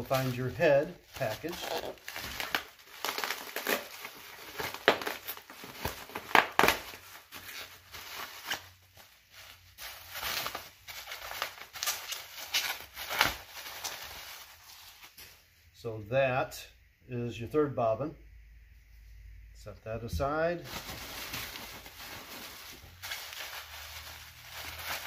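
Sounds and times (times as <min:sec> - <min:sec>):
bubble wrap crinkling: 0:00.0 - 0:15.5, 0:20.6 - 0:25.0.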